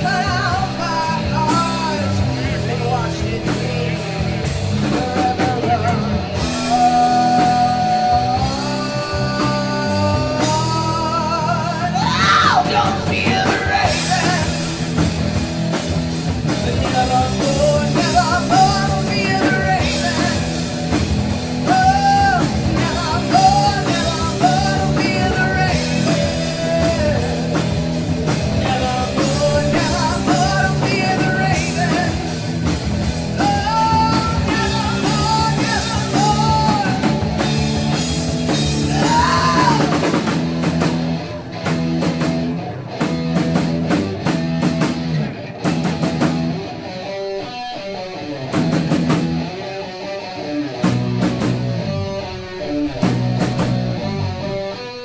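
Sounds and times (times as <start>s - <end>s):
rock band playing: 0.0s - 55.0s
woman singing: 6.7s - 14.5s.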